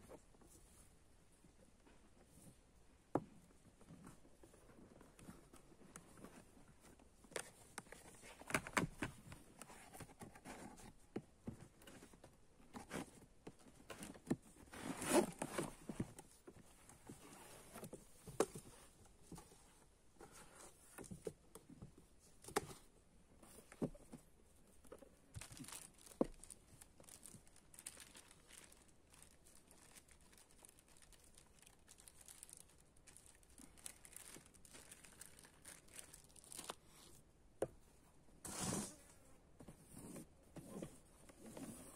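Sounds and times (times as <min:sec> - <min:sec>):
wrapping crinkling: 0:25.3 - 0:37.2.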